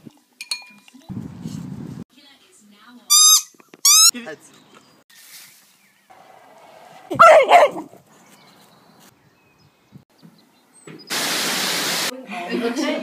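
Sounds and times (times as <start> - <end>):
dog barking: 6.8 - 8.0.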